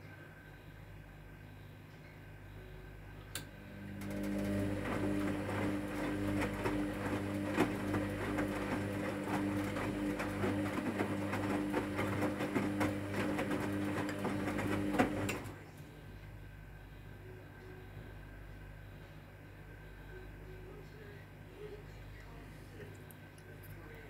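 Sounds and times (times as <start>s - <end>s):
washing machine motor hum: 3.0s - 18.5s
laundry and water sloshing in drum: 4.7s - 15.4s.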